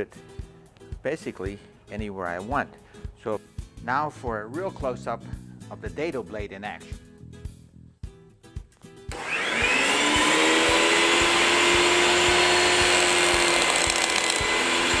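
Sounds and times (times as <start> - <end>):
table saw motor whine: 9.1 - 15.0.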